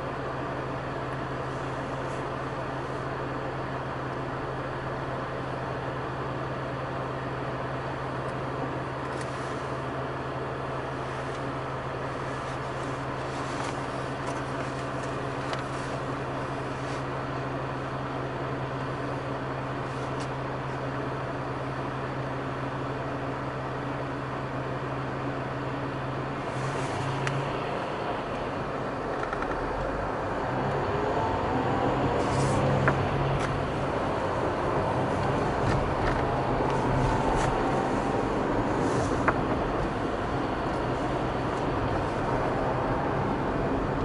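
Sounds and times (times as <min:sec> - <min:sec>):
car engine: 0:00.0 - 0:44.0
tyre and road noise: 0:08.5 - 0:21.1, 0:26.1 - 0:44.0.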